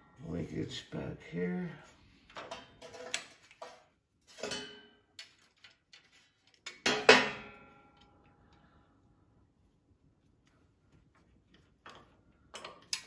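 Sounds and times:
small metal clicks and ticks: 0:11.5 - 0:13.0.

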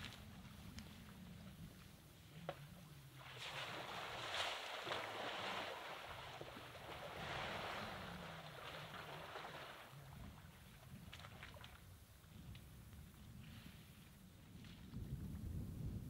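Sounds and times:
elephant splashing muddy water: 0:03.1 - 0:11.8.

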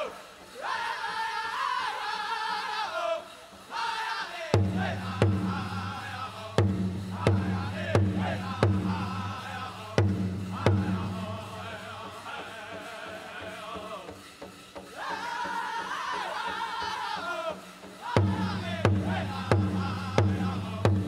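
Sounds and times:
men chanting in high group: 0:00.0 - 0:14.2, 0:14.9 - 0:21.0
large drum beats: 0:04.6 - 0:15.8, 0:17.5 - 0:21.0.

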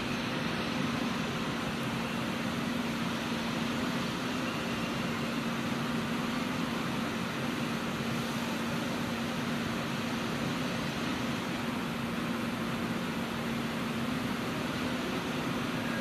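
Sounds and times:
electric train humming: 0:11.3 - 0:16.0.

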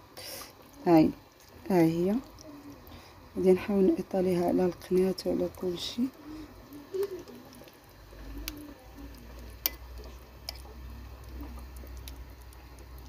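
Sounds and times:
spoon spreading sauce: 0:08.4 - 0:13.0.

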